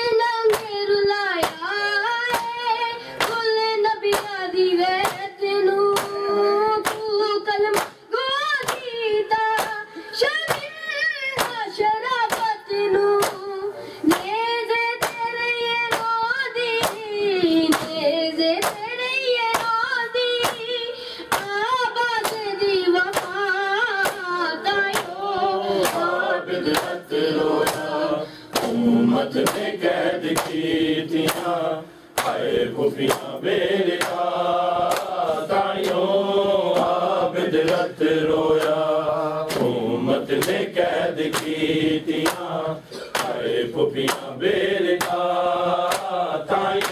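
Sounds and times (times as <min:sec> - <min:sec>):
hands slapping chests: 0:00.4 - 0:00.8, 0:01.4 - 0:01.6, 0:02.3 - 0:03.5, 0:04.1 - 0:04.4, 0:05.0 - 0:05.3, 0:05.9 - 0:08.0, 0:08.6 - 0:09.8, 0:10.4 - 0:11.6, 0:12.2 - 0:12.6, 0:13.2 - 0:13.5, 0:14.1 - 0:14.4, 0:15.0 - 0:15.3, 0:15.9 - 0:16.2, 0:16.8 - 0:17.1, 0:17.7 - 0:18.0, 0:18.6 - 0:18.9, 0:19.5 - 0:19.8, 0:20.4 - 0:20.7, 0:21.3 - 0:21.6, 0:22.2 - 0:27.0, 0:27.6 - 0:31.6, 0:32.2 - 0:46.9
voices chanting together: 0:23.1 - 0:46.9.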